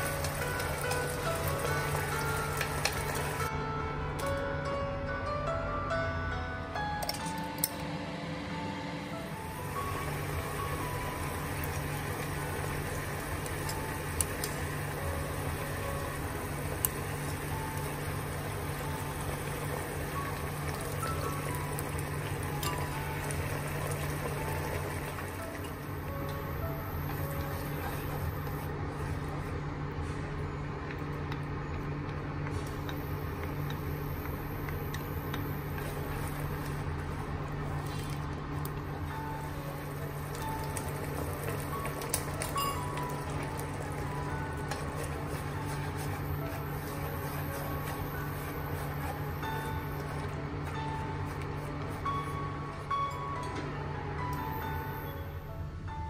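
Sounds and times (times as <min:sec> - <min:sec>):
sauce simmering in a wok: 0:09.6 - 0:26.1, 0:39.8 - 0:50.4
chopsticks stirring food: 0:40.2 - 0:52.6.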